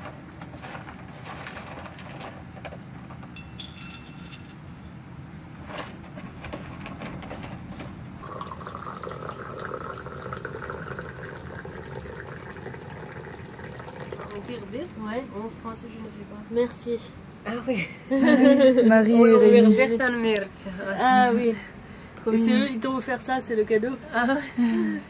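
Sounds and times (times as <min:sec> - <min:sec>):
tea pouring into glass: 0:08.2 - 0:14.5.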